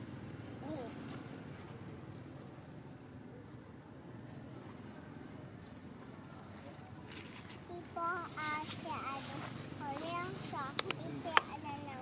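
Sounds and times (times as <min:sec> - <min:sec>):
low outdoor background: 0:00.0 - 0:12.0
faint high chirp: 0:04.2 - 0:06.4.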